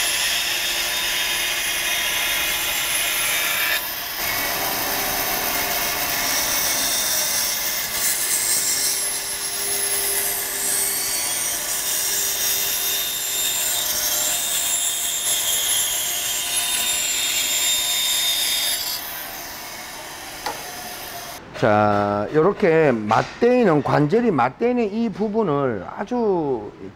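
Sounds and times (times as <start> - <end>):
band saw cutting plywood: 0.0 - 21.4.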